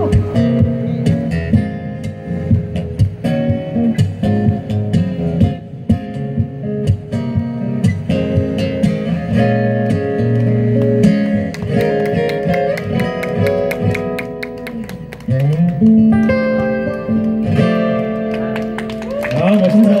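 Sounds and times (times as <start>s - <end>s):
acoustic guitar chords: 0.0s - 19.0s.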